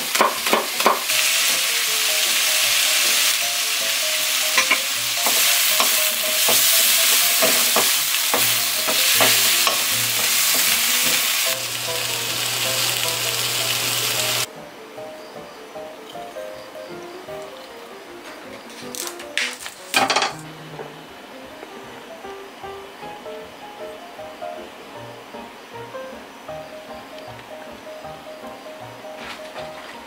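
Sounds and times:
vegetables sizzling in pan: 0.0 - 14.5
soft background music: 0.1 - 30.0
spatula scraping and knocking pan: 4.6 - 10.8.

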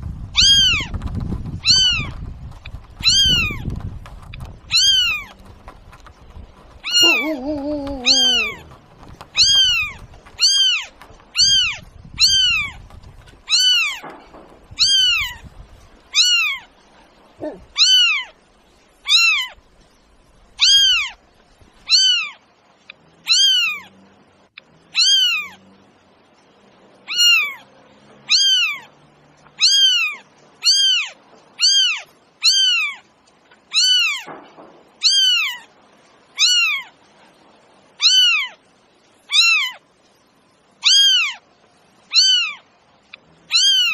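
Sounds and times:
cat meowing: 0.4 - 0.9, 3.0 - 3.6, 4.7 - 5.4, 6.8 - 12.8, 13.5 - 14.0, 14.8 - 15.4, 16.1 - 16.7, 17.4 - 18.4, 19.1 - 19.6, 20.6 - 21.2, 21.9 - 22.4, 23.3 - 23.9, 25.0 - 25.6, 27.1 - 27.6, 28.3 - 28.9, 29.6 - 33.0, 33.7 - 34.3, 35.0 - 35.7, 36.4 - 36.9, 38.0 - 38.6, 39.3 - 39.8, 40.8 - 41.4, 42.1 - 42.6, 43.5 - 43.9.

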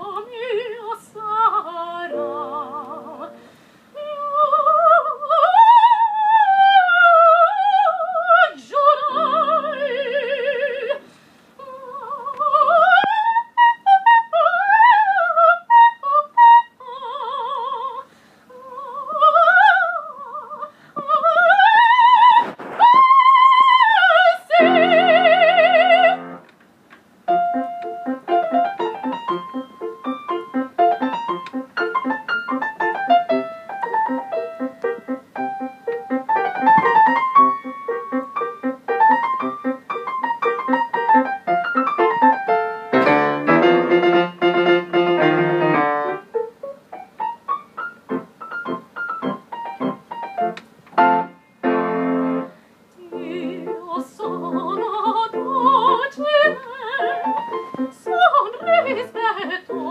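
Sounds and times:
soprano singing opera: 0.0 - 26.4, 53.0 - 59.9
piano playing: 2.0 - 3.5, 8.8 - 10.7, 24.6 - 26.4, 27.3 - 59.9.

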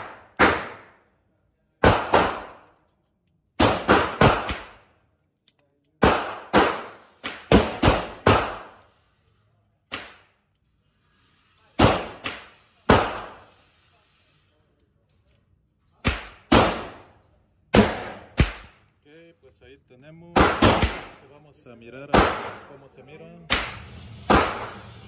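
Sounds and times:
gunshots echoing indoors: 0.0 - 1.1, 1.8 - 2.8, 3.5 - 5.0, 6.0 - 8.9, 11.7 - 13.6, 16.0 - 18.8, 20.3 - 21.2, 22.1 - 22.8, 23.5 - 25.0.

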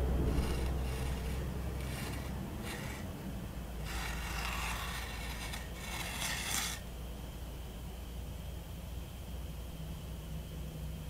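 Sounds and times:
scratching on a surface: 0.2 - 3.1, 3.8 - 6.9.

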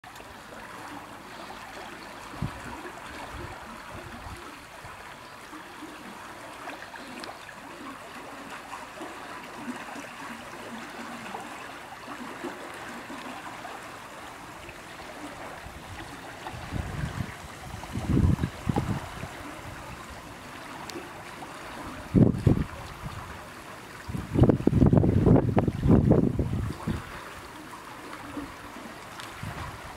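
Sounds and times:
shallow water flowing: 0.0 - 29.9
wind buffeting microphone: 2.2 - 5.0, 15.3 - 20.6, 21.7 - 27.5, 29.3 - 29.9.

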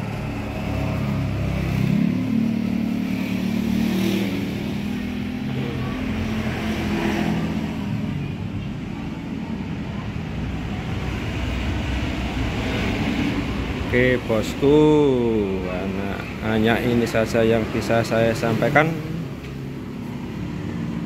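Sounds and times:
vehicle engine revving: 0.0 - 8.0.

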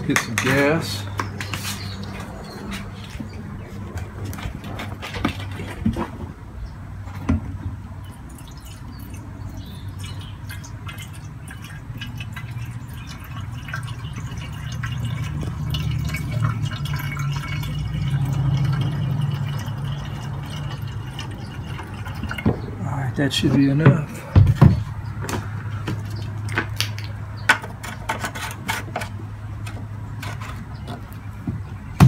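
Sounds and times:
gasoline pouring into tank: 8.1 - 23.7.

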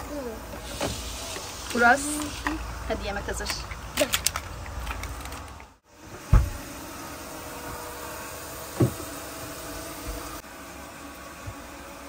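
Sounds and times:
dull thump: 6.3 - 6.6.

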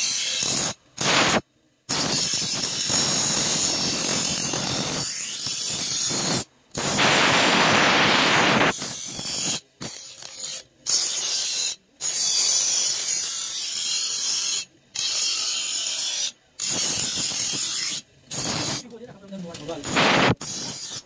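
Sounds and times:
bench grinder grinding steel: 7.8 - 18.8, 19.8 - 21.0.

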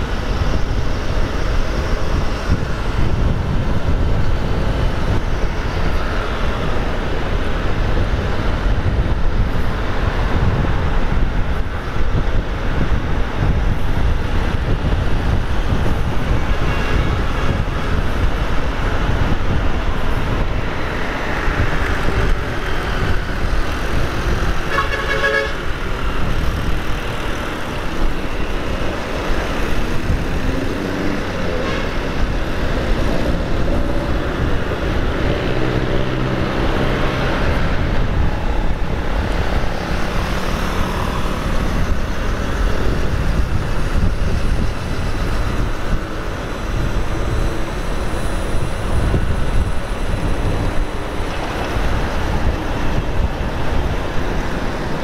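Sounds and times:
road and wind noise: 0.0 - 55.0
vehicle horn tooting: 24.7 - 25.7.

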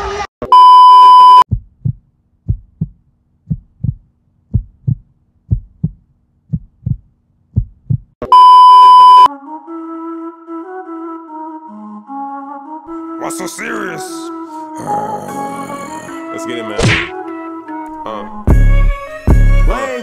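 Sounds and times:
test-tone beeps: 0.6 - 1.4, 8.3 - 9.3
heartbeat double thumps: 1.5 - 8.2, 18.5 - 19.7.

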